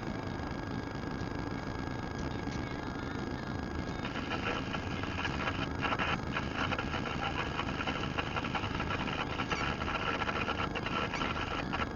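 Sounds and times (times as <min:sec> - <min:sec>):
fast buzzing rattle: 0:04.0 - 0:11.9.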